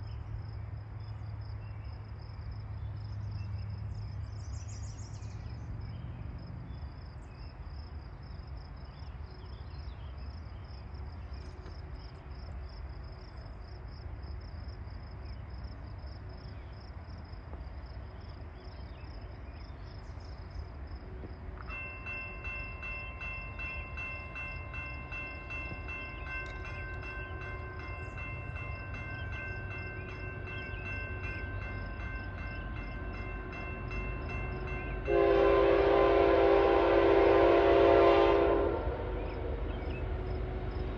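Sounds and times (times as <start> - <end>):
freight train rumble: 0.0 - 40.9
railroad crossing bell ringing: 21.6 - 38.6
locomotive horn blowing: 34.9 - 39.7.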